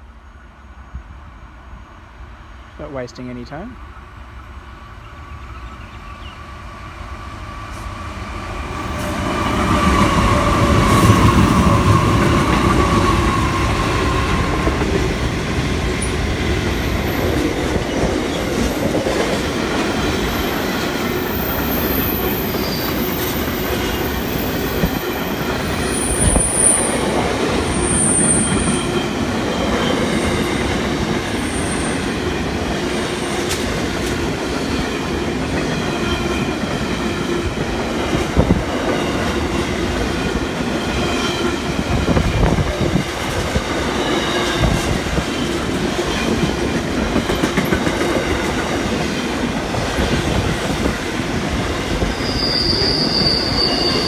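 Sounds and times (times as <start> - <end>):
train wheels rumbling on rails: 3.6 - 54.0
faint high wheel squeal: 52.1 - 54.0.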